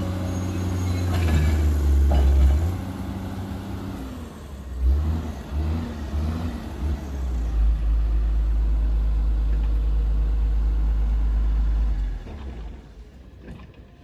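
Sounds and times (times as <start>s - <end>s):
excavator diesel engine rumbling: 0.0s - 14.0s.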